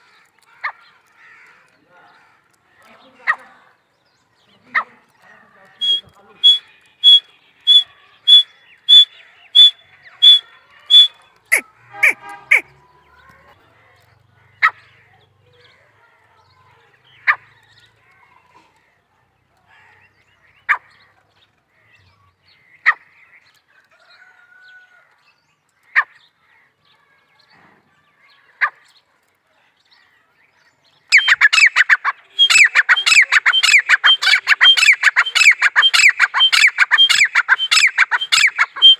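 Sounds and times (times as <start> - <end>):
francolin calling: 5.8 - 12.7, 31.1 - 38.9.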